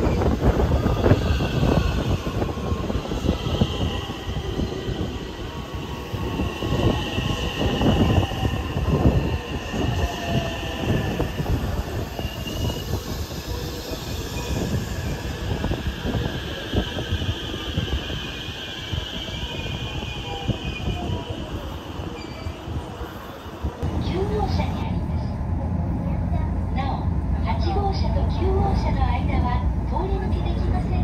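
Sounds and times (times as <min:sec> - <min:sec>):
high wheel squeal: 0:00.0 - 0:23.5
train wheel rumble: 0:00.0 - 0:31.0.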